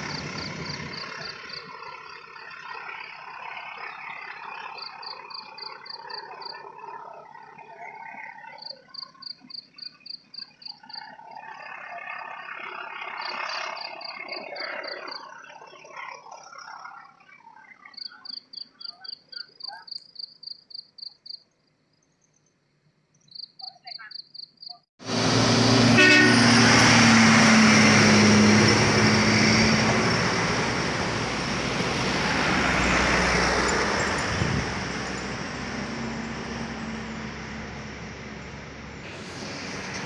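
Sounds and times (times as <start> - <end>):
truck diesel engine labouring: 0.0 - 9.4, 25.0 - 40.0
insects chirping: 0.1 - 7.4, 8.1 - 12.3, 13.2 - 15.4, 17.8 - 24.8.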